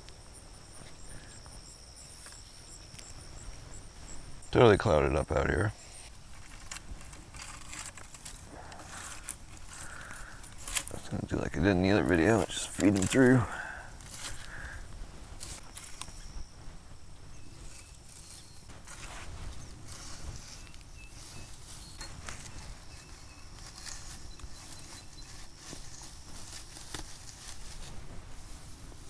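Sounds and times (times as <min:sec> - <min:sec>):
pine saplings rustling: 0:05.6 - 0:29.0
twigs crackling: 0:05.8 - 0:29.0
faint high chirps: 0:20.4 - 0:25.4.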